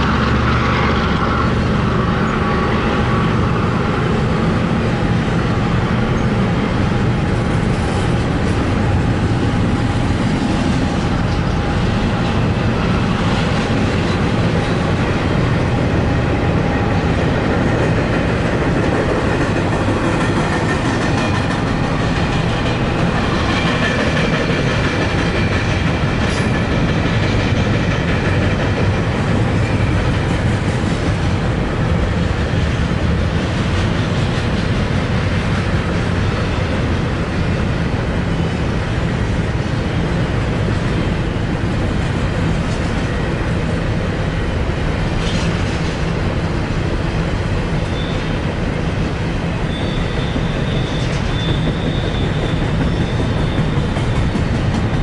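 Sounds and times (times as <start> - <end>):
train wheels rumbling on rail: 0.0 - 55.0
high wheel squeal: 47.8 - 48.4, 49.6 - 54.5.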